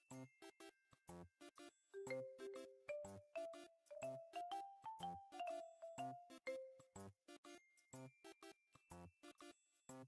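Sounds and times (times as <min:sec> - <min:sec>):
staccato background music: 0:01.1 - 0:07.6.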